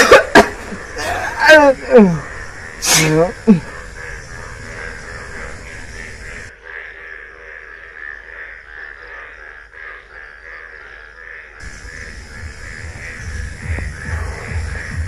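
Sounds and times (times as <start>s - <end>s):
animal calling rhythmically: 11.6s - 15.0s.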